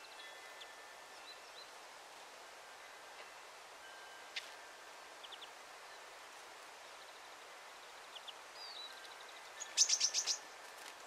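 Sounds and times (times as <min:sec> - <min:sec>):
faint steady hiss: 0:00.0 - 0:11.0
small birds calling: 0:05.2 - 0:06.2, 0:06.9 - 0:10.5.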